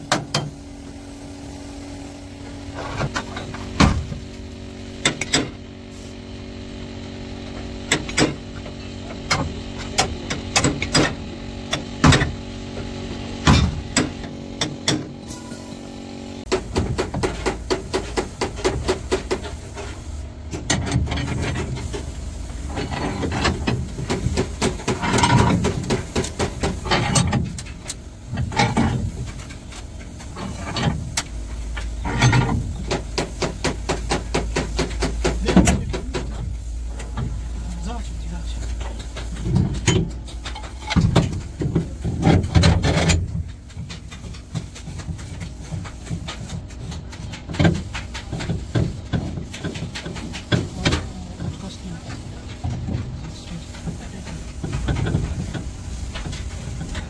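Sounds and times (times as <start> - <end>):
machine hum: 0.0 - 57.0
metal knocks and clanks: 20.5 - 22.0, 22.7 - 37.4, 38.7 - 51.1.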